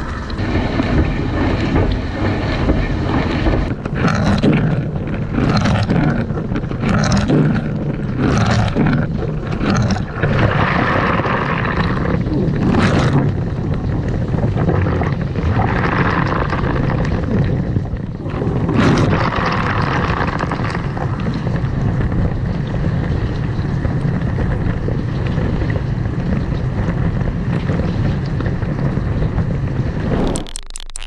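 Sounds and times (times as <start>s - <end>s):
dishwasher droning: 0.0s - 4.2s.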